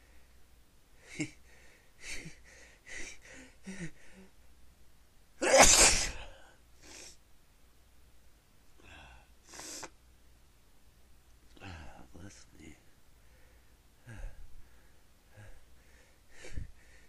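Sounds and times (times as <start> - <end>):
person sneezing: 5.4 - 7.2
quick sharp breaths: 13.2 - 17.0.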